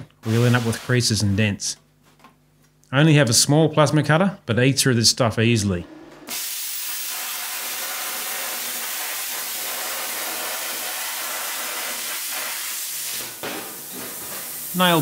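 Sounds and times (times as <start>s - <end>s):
plasma cutter hissing: 0.2s - 1.1s, 6.3s - 15.0s.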